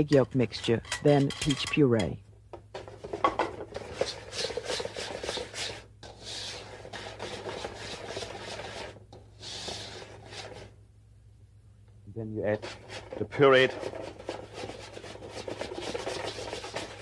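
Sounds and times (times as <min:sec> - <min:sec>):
whisk scraping metal bowl: 0:03.7 - 0:10.8, 0:12.5 - 0:17.0.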